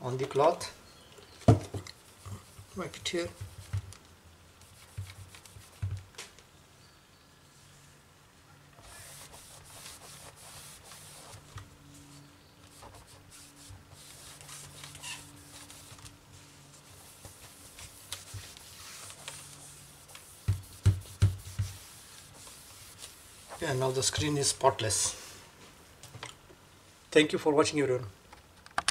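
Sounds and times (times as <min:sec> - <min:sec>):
cloth rubbing on screen: 0:08.8 - 0:25.8.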